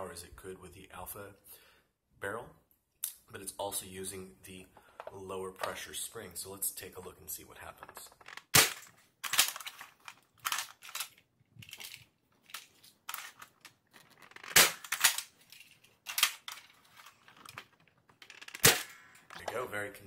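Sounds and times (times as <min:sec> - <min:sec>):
plastic mechanism clacks: 0:07.8 - 0:19.6.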